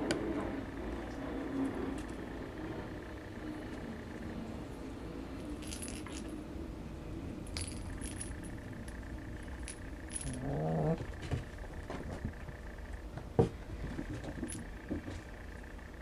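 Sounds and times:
faint jingling clicks: 7.5s - 11.0s.

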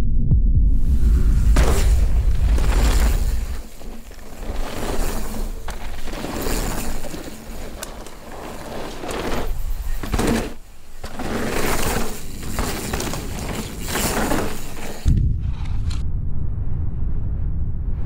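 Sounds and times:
sudden low thump: 0.0s - 3.6s
low rumble: 0.0s - 4.7s, 15.1s - 18.0s
bike tyres skidding on dirt: 1.5s - 15.8s.

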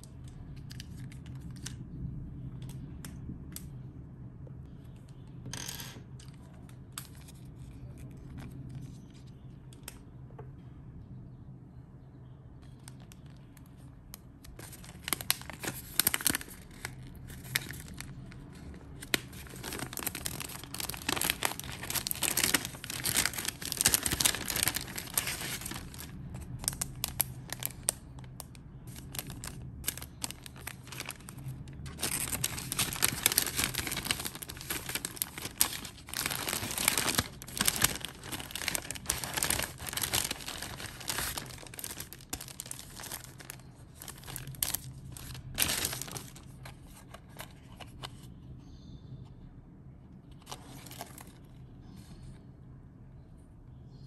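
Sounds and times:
cellophane and paper crinkling: 0.4s - 1.8s, 12.6s - 48.3s, 50.4s - 51.6s.

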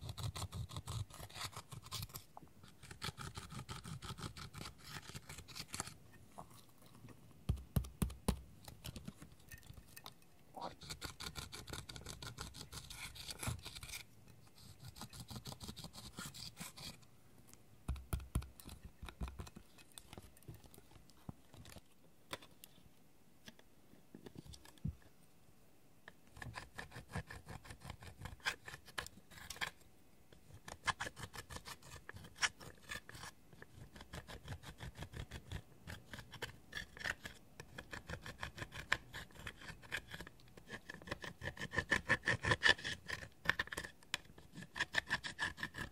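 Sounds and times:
tool scratching pressed eyeshadow: 0.0s - 6.0s, 10.7s - 17.0s, 26.3s - 29.8s, 30.6s - 45.9s.

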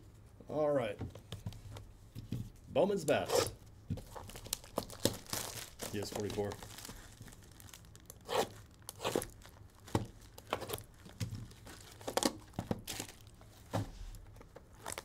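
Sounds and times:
plastic shrink wrap tearing: 4.0s - 13.3s, 14.8s - 15.0s.

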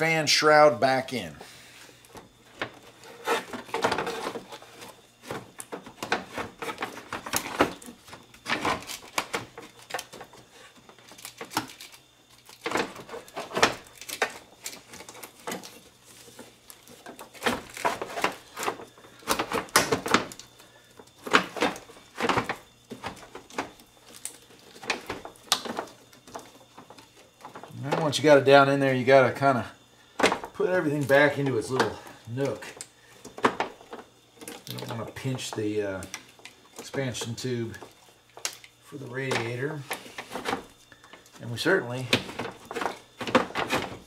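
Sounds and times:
plastic shroud knocking and scraping: 42.0s - 44.0s.

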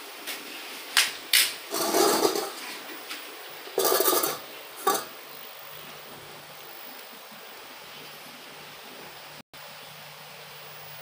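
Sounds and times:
bowl scraping on stone floor: 1.7s - 2.9s, 3.8s - 5.2s
steel bowl clinking on stone: 3.8s - 5.1s.

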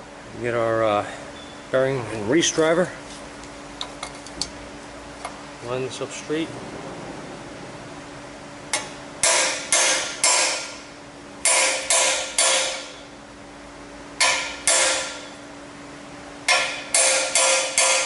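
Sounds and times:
hammer striking metal: 8.7s - 13.0s, 14.2s - 15.4s, 16.5s - 18.0s.

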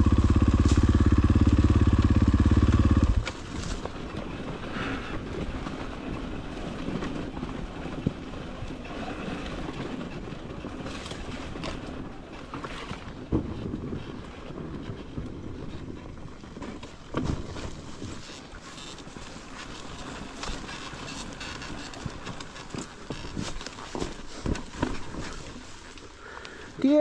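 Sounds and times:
motorcycle engine running at low revs: 0.0s - 4.8s.

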